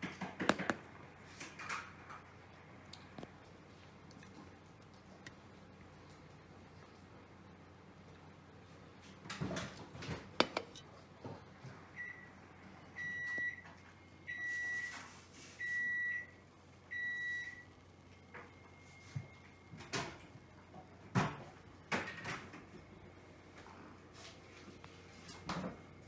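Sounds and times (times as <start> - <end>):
appliance beeper short beeps: 13.0 - 13.7, 14.3 - 15.0, 15.6 - 17.8.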